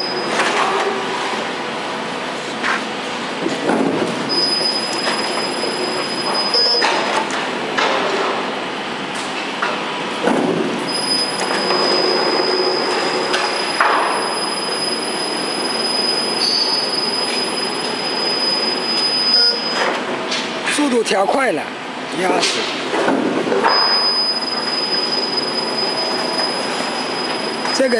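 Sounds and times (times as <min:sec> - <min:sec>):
high metallic squeal: 0:00.0 - 0:00.4, 0:04.3 - 0:06.9, 0:10.9 - 0:19.9, 0:23.7 - 0:27.9
roll forming machine running: 0:00.0 - 0:20.8, 0:22.6 - 0:27.9.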